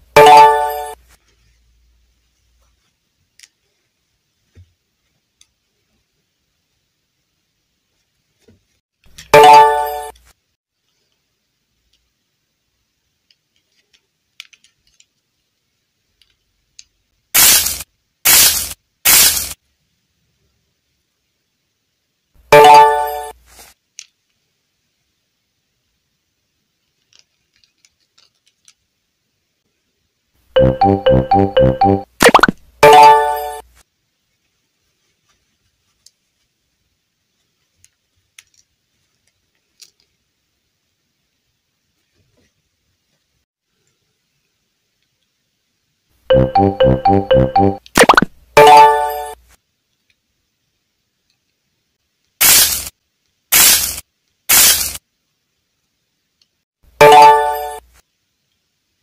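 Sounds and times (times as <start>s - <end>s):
bursts of hissing: 17.4s - 19.6s, 52.4s - 52.9s, 53.5s - 55.0s.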